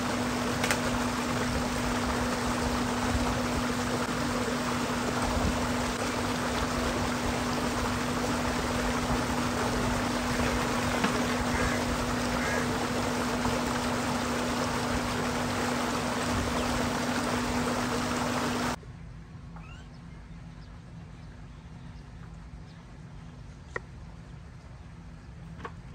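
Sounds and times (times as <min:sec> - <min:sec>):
water gushing into a tank: 0:00.0 - 0:18.8
quiet outdoor ambience: 0:00.0 - 0:25.9
steady low hum: 0:00.0 - 0:25.9.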